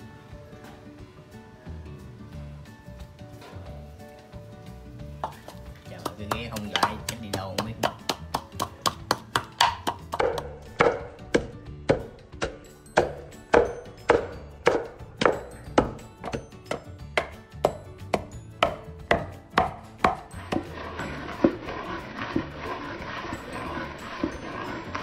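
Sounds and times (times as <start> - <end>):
pestle grinding paste: 5.2 - 25.0
pestle pounding in wooden mortar: 5.2 - 25.0.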